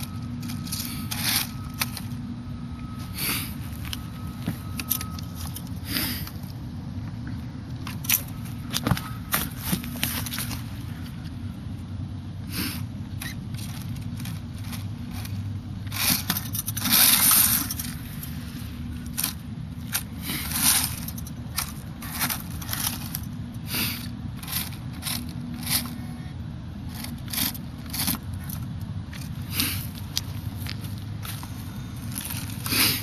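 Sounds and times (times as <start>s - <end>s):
low steady hum: 0.0s - 33.0s
dry leaves crunching: 13.5s - 26.0s, 26.9s - 33.0s.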